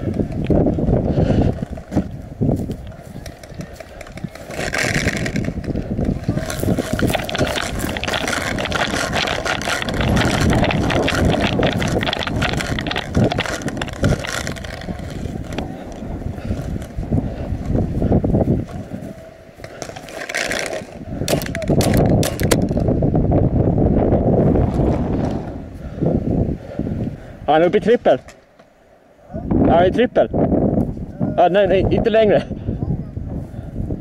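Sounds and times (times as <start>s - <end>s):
wind buffeting microphone: 0.0s - 34.0s
footfalls on dry grass: 1.5s - 21.7s
gear knocking: 3.2s - 17.0s.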